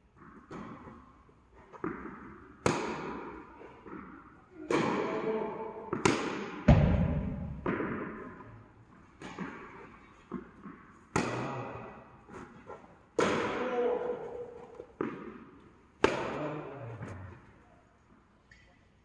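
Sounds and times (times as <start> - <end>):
tennis ball bouncing: 0.2 - 5.2, 5.8 - 11.5, 12.3 - 16.4
racket striking tennis ball: 0.2 - 16.5.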